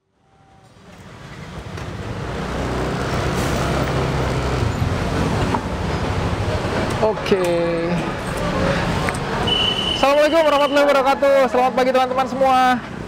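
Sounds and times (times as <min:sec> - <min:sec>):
street traffic: 0:00.0 - 0:13.0.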